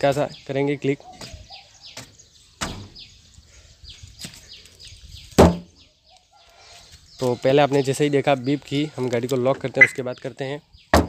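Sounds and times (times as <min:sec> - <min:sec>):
birds chirping: 0:00.0 - 0:11.0
knocks on car body: 0:05.4 - 0:05.7.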